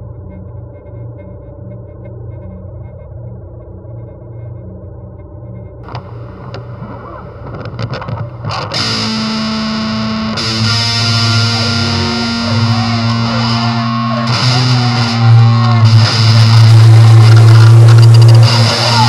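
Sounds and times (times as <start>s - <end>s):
distorted electric guitar drone: 5.8s - 19.0s.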